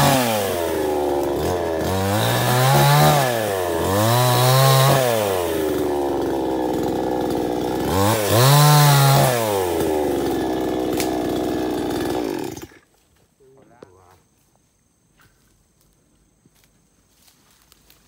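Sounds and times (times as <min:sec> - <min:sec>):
chainsaw engine revving: 0:00.0 - 0:12.9.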